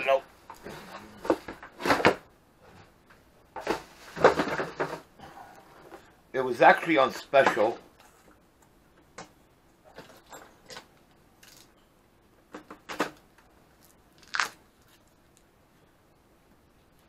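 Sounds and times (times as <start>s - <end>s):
shrink wrap crinkling: 13.8s - 15.5s.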